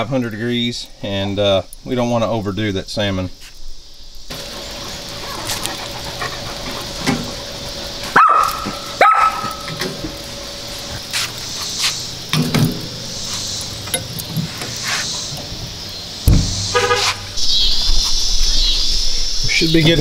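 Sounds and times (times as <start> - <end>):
dog barking: 8.1 - 9.7
metal tongs clinking on grill: 13.3 - 14.3.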